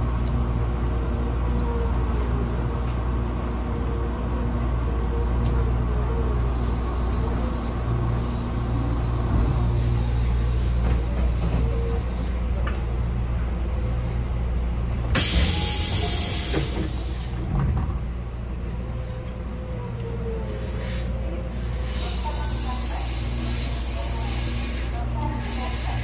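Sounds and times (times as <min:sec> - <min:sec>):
electric train humming: 0:00.0 - 0:26.0.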